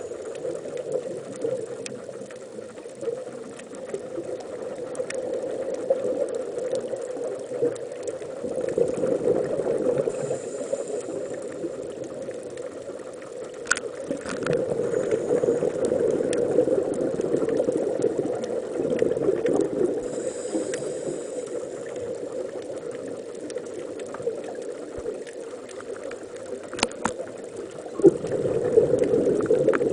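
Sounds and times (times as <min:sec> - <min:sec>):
muffled underwater bubbling rush: 0:00.0 - 0:29.9.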